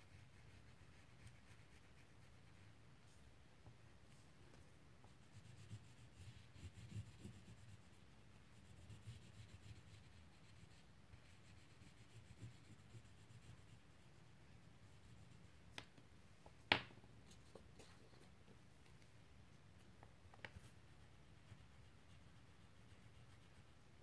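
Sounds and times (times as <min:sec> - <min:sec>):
crayon scratching on paper: 0:05.2 - 0:14.1, 0:20.5 - 0:23.9.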